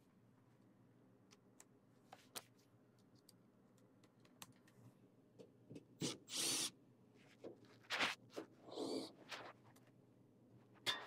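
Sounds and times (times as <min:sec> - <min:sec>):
faint clicks and taps: 0:01.2 - 0:05.9.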